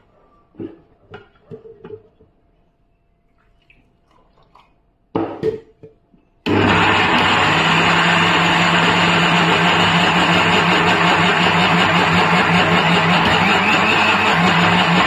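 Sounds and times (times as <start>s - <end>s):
mixer grinder whirring: 6.5s - 15.0s.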